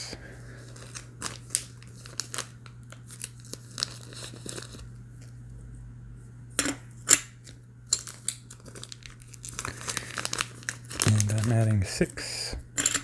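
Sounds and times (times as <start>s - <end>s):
plastic bags crinkling: 0.6s - 4.9s, 8.0s - 11.8s.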